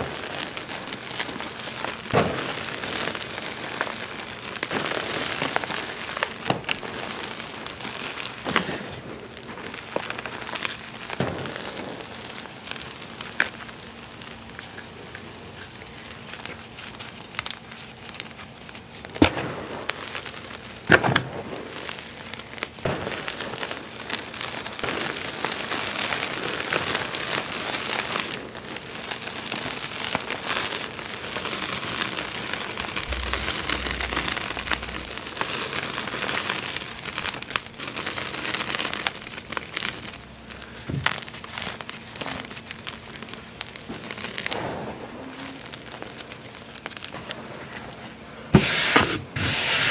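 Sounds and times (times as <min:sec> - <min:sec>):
sharp cracks: 0:19.1 - 0:23.5, 0:29.4 - 0:44.7
chalk crumbling: 0:30.6 - 0:43.7.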